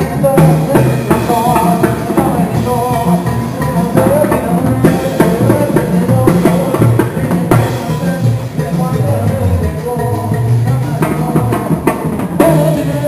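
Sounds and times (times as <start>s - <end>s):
brass band music: 0.0s - 13.0s
man singing into microphone: 0.0s - 13.0s.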